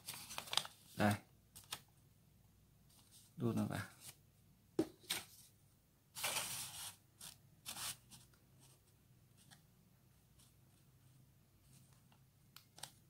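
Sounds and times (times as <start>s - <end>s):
paper rustling and crinkling: 0.0s - 1.8s, 6.2s - 8.8s.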